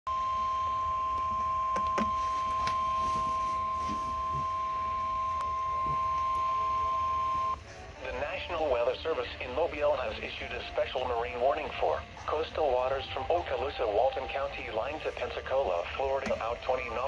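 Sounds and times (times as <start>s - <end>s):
faint lower tone: 0.1s - 7.6s
weather radio alarm tone: 0.1s - 17.0s.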